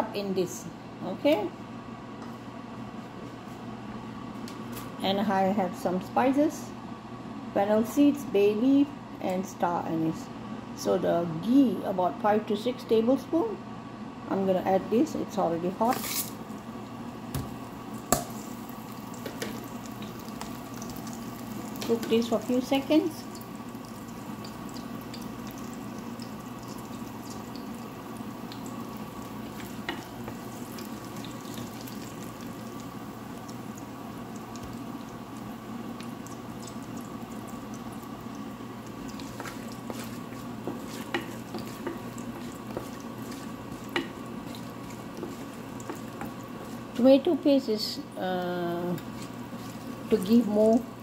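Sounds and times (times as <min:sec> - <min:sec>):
spices sizzling in oil: 0:15.8 - 0:51.0.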